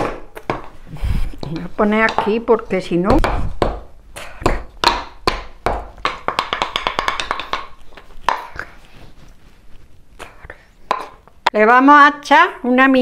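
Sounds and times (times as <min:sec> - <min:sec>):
wooden pestle pounding in mortar: 0:01.4 - 0:08.6.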